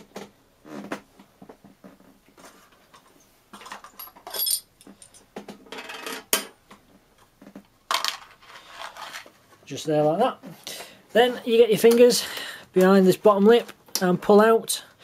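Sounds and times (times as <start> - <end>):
small metal parts clinking: 3.6 - 6.3
metallic tinkle: 4.0 - 5.2.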